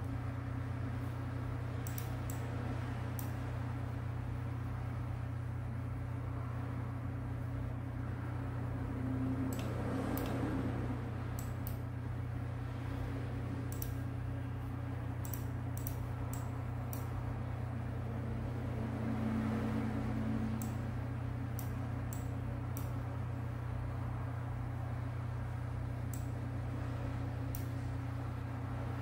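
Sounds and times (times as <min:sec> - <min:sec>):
low hum of running equipment: 0:00.0 - 0:29.0
computer mouse clicks: 0:01.8 - 0:02.4, 0:09.5 - 0:10.4, 0:11.4 - 0:11.8, 0:13.7 - 0:14.0, 0:15.2 - 0:17.1, 0:20.6 - 0:20.8.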